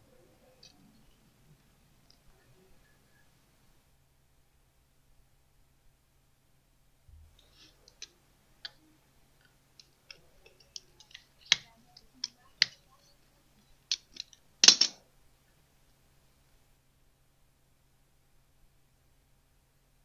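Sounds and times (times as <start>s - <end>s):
sharp wire snaps: 13.9s - 15.0s.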